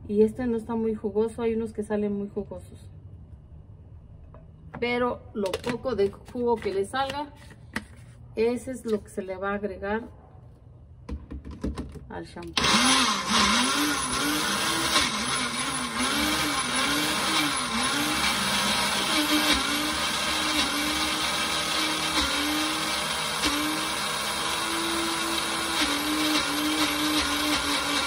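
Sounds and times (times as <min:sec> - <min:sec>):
blender motor grinding: 0:12.6 - 0:28.0.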